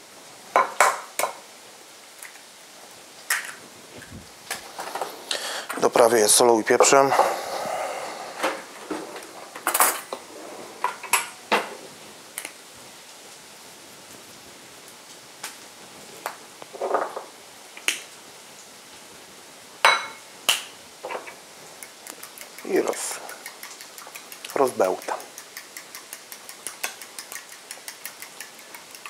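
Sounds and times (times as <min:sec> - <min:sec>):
clicks and clinks of shakers: 0:21.9 - 0:29.0.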